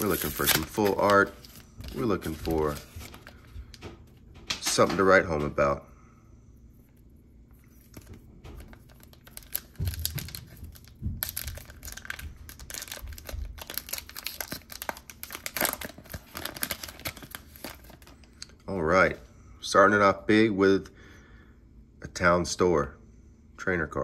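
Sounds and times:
wrapper tearing and crinkling: 0:00.0 - 0:03.4, 0:07.8 - 0:18.3.

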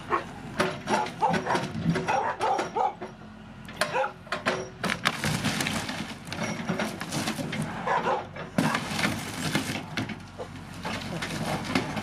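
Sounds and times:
loader engine running: 0:00.0 - 0:12.0
wood cracking and splintering: 0:04.9 - 0:07.7, 0:08.6 - 0:12.0.

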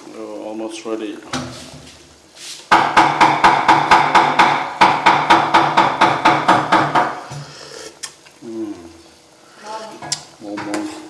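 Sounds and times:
ladle knocking on metal pot: 0:02.7 - 0:07.3.

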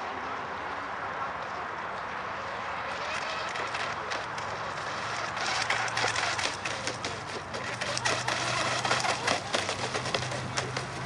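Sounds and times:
model speedboat motor buzzing: 0:02.3 - 0:11.0.

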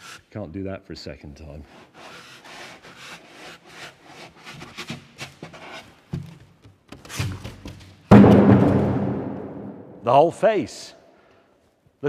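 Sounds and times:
polystyrene scraping on cardboard: 0:01.8 - 0:06.0
loud knocks: 0:08.1 - 0:10.0.

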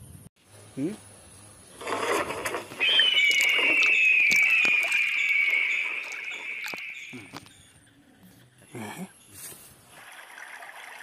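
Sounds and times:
high falling whistling tone: 0:02.8 - 0:07.7.

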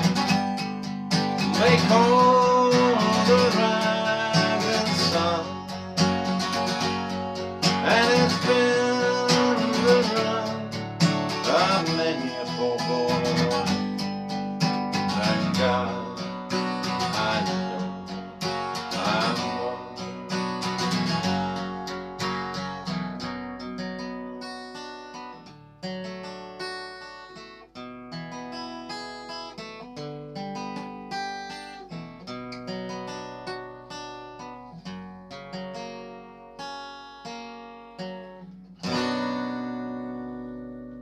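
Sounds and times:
strummed guitar chord ringing: 0:00.0 - 0:24.4, 0:38.8 - 0:41.0
acoustic guitar picking chords: 0:00.0 - 0:41.0.

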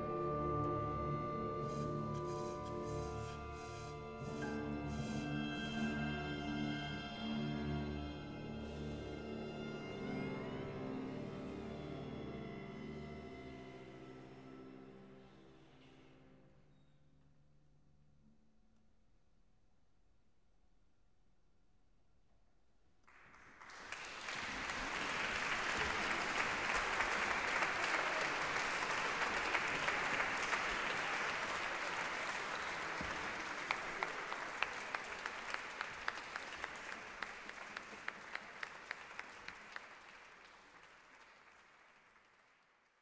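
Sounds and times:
audience applauding: 0:23.1 - 0:43.0.

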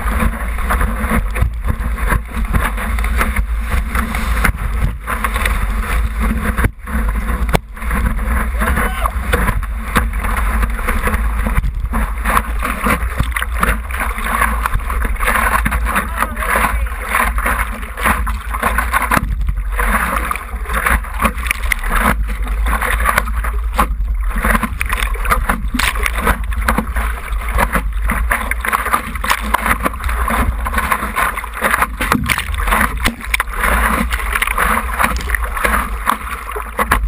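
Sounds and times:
constant low rumble: 0:00.0 - 0:37.0
water splashing against paddleboard: 0:00.0 - 0:37.0.

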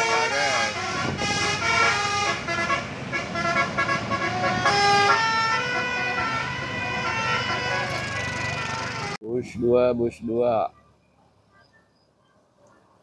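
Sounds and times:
bus air horn playing a tune: 0:00.0 - 0:09.2
bus engine running: 0:00.0 - 0:09.2.

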